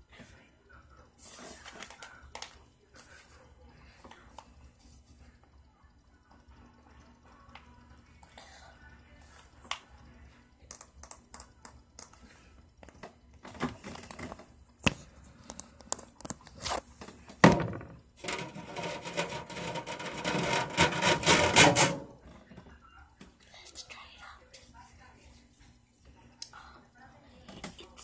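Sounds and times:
scratching against microphone: 0:18.2 - 0:21.9.

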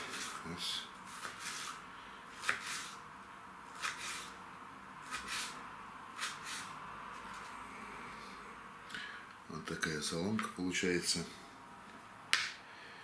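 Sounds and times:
knife slicing on cutting board: 0:01.1 - 0:01.8, 0:02.4 - 0:03.0, 0:03.8 - 0:04.3, 0:05.1 - 0:05.6.

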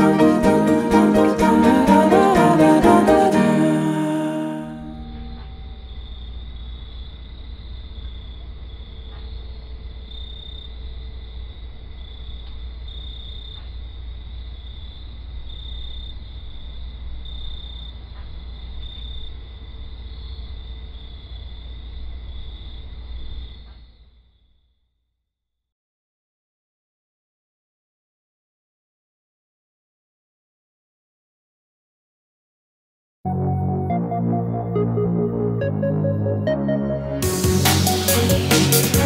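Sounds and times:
crickets chirping: 0:05.0 - 0:24.8.

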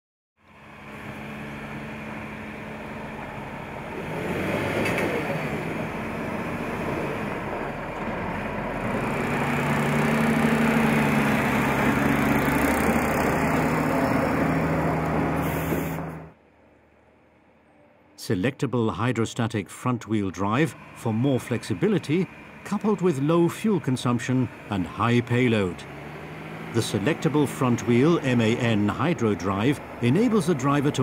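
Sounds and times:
truck diesel engine under load: 0:00.4 - 0:16.4, 0:19.0 - 0:31.0.

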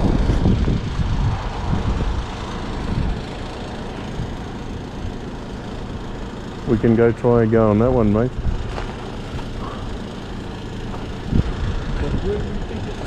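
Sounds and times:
wind buffeting microphone: 0:00.0 - 0:03.3, 0:11.1 - 0:12.6.

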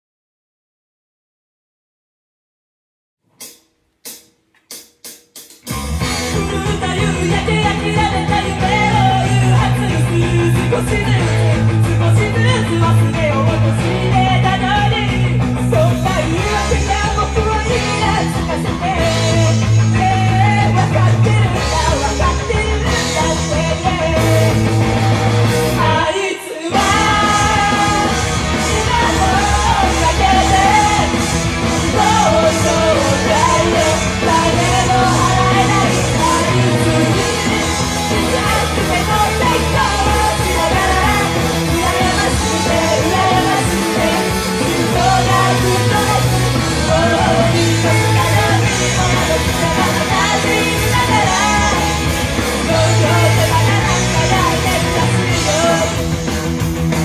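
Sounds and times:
loud rock-style music: 0:04.7 - 0:57.0
women singing into microphones: 0:06.4 - 0:24.6, 0:25.8 - 0:56.0.

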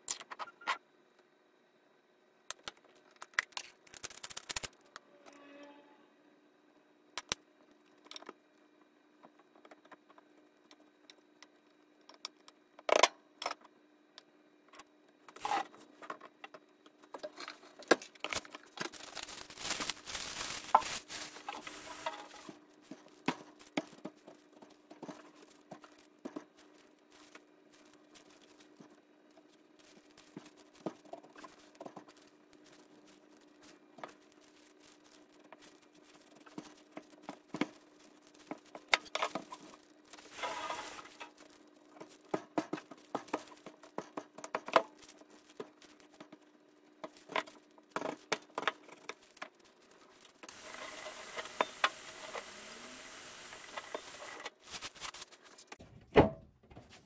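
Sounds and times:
scraping and rustling: 0:17.3 - 0:52.5, 0:53.7 - 0:55.8.

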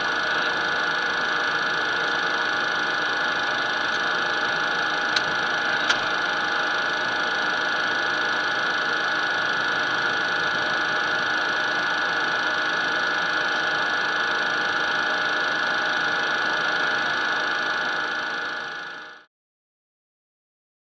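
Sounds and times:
jet engines whining: 0:00.0 - 0:14.4.

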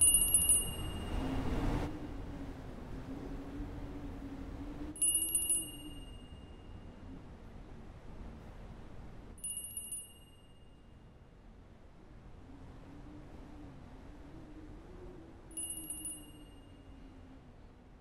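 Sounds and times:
high-pitched bell chime trills: 0:00.0 - 0:01.2, 0:05.0 - 0:06.6, 0:09.4 - 0:10.9, 0:15.6 - 0:16.9
faint low wavering hum: 0:00.0 - 0:18.0.

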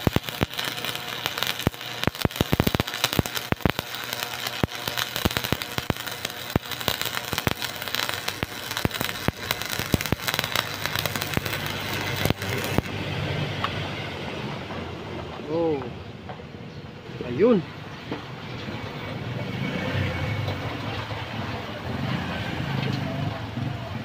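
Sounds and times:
welder low steady hum: 0:00.0 - 0:13.6
welding arc crackling: 0:00.0 - 0:13.8.

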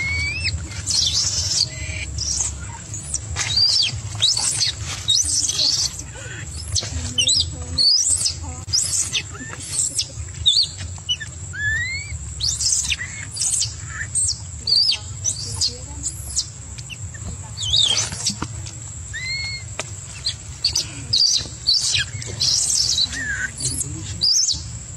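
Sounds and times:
baby monkey squealing: 0:00.0 - 0:18.5, 0:19.1 - 0:24.8
low hum: 0:00.0 - 0:24.9.

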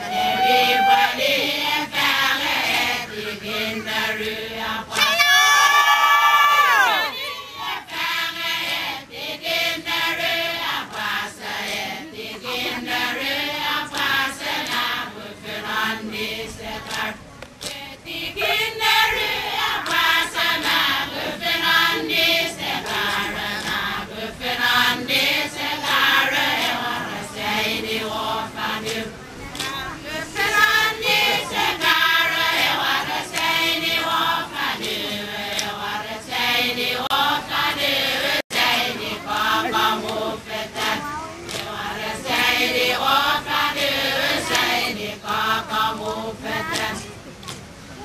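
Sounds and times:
women chanting together: 0:00.0 - 0:47.1.

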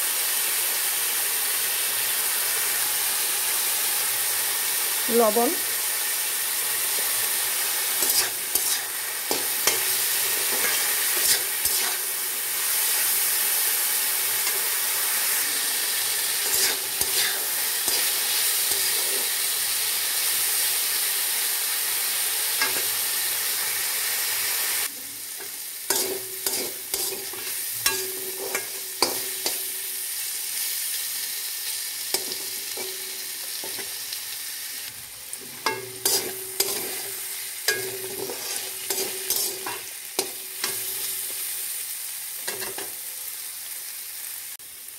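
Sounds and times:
vegetables sizzling in oil: 0:00.0 - 0:44.9
spatula scraping a metal pan: 0:08.0 - 0:12.1, 0:16.4 - 0:19.3, 0:25.9 - 0:29.6, 0:35.5 - 0:41.3.

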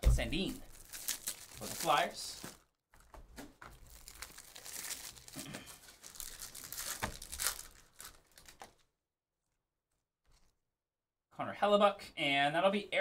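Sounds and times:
wrappers crinkling and tearing: 0:00.6 - 0:08.9.

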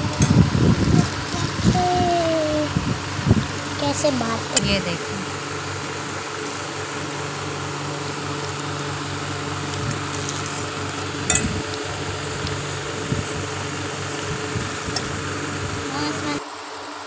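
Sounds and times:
fan humming: 0:00.0 - 0:17.0.

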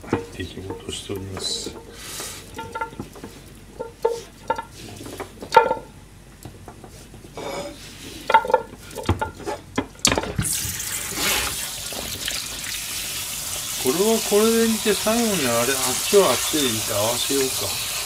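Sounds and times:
tap water running into a pan: 0:10.4 - 0:18.0.

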